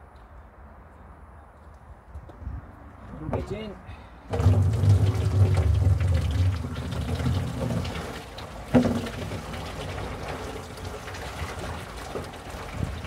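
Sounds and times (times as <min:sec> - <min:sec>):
water pouring into plastic barrel: 0:04.3 - 0:13.0.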